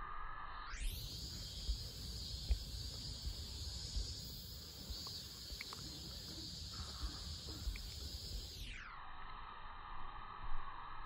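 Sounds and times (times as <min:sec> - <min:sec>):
high-pitched insect drone: 0:00.0 - 0:11.0.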